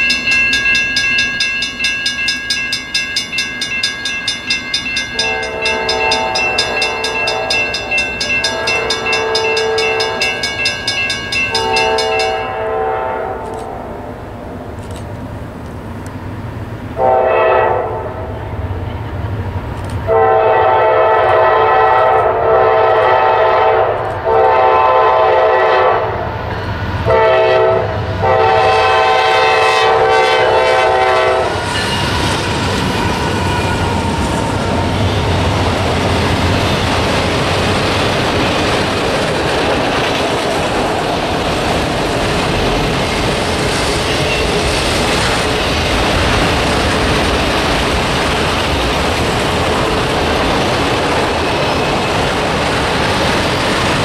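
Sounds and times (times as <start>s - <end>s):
train cars rumbling on rails: 0.0s - 54.0s
locomotive air horn blasts: 5.2s - 10.4s, 11.5s - 14.0s, 17.0s - 18.4s, 20.1s - 26.2s, 27.1s - 31.6s.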